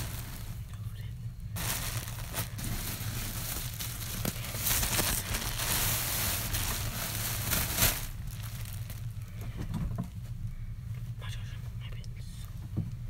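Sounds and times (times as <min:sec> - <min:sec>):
rustling and crinkling: 0:00.0 - 0:10.4.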